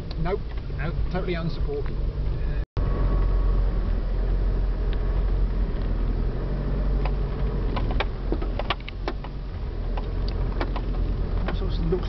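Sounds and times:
vehicle engine low drone: 0:00.0 - 0:12.0
knocks and rattles of stones: 0:07.0 - 0:11.7.

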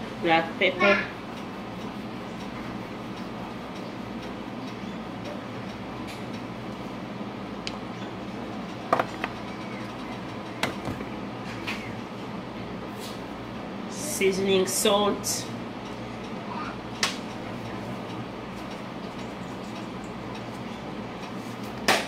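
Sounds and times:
room hum: 0:00.0 - 0:22.0.

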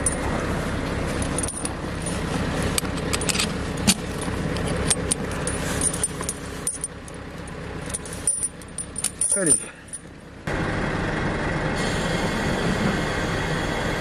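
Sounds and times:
snow chain links clinking: 0:00.0 - 0:00.3, 0:01.1 - 0:10.1
truck engine running: 0:00.0 - 0:14.0.

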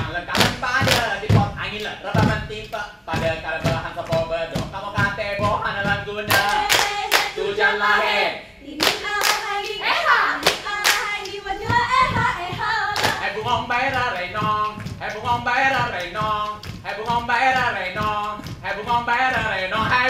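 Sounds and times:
hands clapping in rhythm: 0:00.0 - 0:07.5, 0:08.8 - 0:09.8, 0:10.4 - 0:20.0
people singing a chant: 0:04.9 - 0:14.5.

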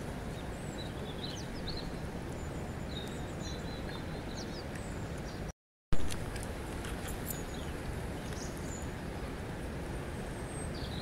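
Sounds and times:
birds chirping and whistling: 0:00.5 - 0:05.5.

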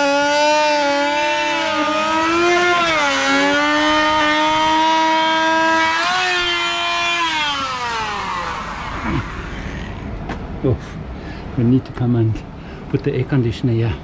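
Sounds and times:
motor whining: 0:00.0 - 0:10.2.

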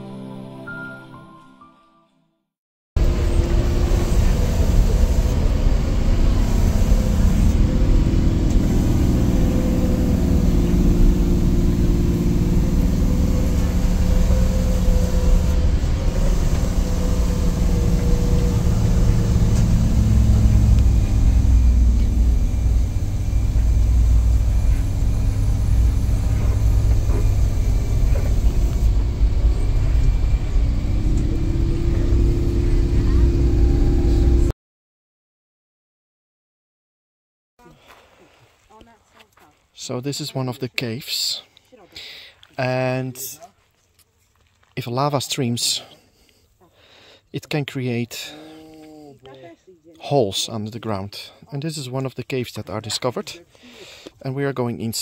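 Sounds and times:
vehicle engine under load: 0:03.0 - 0:34.5.

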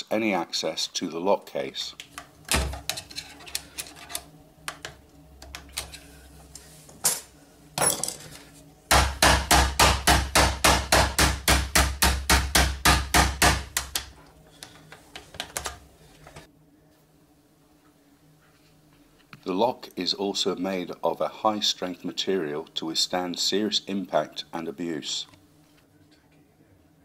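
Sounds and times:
metal tool scraping inside lock: 0:02.9 - 0:04.2.

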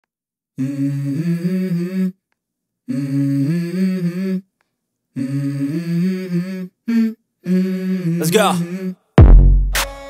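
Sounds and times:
low voice humming: 0:05.2 - 0:09.0.

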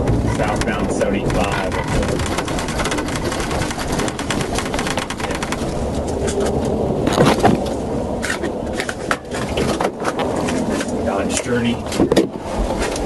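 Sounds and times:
small clicks and crackles: 0:00.0 - 0:11.5
road and tyre noise: 0:00.0 - 0:13.0.

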